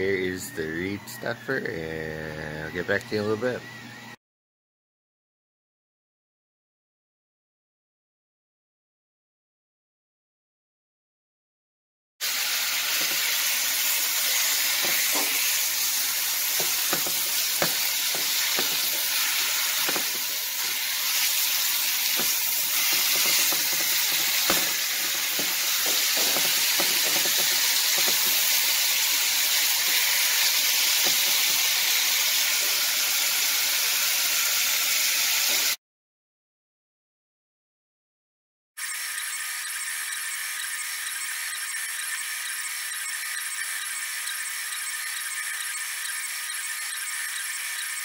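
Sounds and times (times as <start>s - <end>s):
bacon sizzling in a frying pan: 12.2s - 35.8s.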